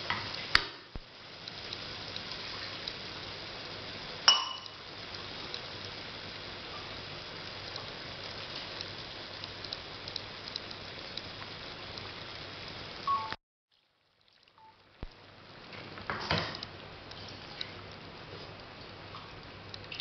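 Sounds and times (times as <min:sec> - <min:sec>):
food sizzling in a pot: 0:00.0 - 0:18.4
clink: 0:04.3 - 0:04.8.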